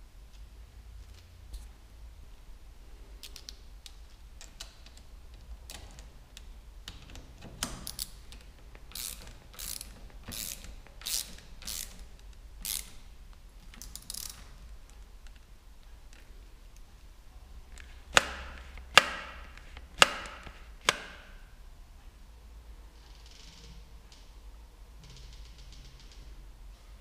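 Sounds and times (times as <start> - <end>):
ratcheting screwdriver clicking: 6.9 - 13.0.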